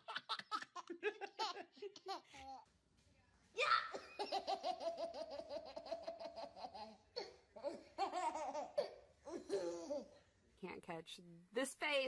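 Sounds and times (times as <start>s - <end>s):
baby laughing: 0.0s - 2.6s, 3.9s - 10.1s.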